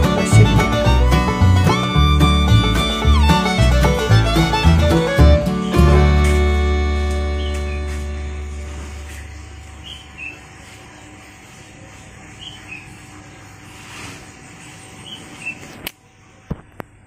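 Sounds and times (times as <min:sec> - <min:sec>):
background music: 0:00.0 - 0:08.7
outdoor background noise: 0:00.0 - 0:17.0.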